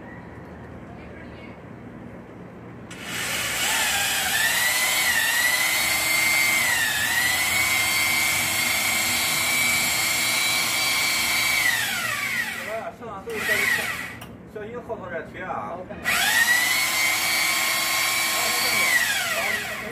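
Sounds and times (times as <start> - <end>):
cordless drill whining: 2.9 - 14.2, 16.0 - 19.9.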